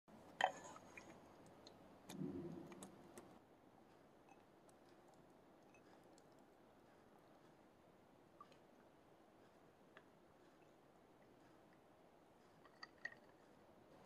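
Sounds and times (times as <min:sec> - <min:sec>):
spoon stirring thick syrup: 0:00.2 - 0:03.4, 0:04.3 - 0:07.7.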